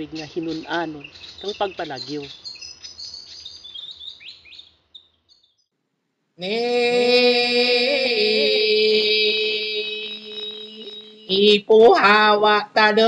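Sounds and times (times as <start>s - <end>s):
person chanting: 6.4s - 13.0s.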